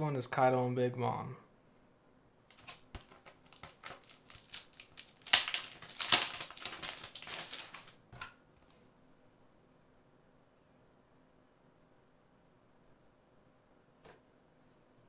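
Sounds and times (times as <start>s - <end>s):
packaging crackling and rustling: 2.5s - 8.3s.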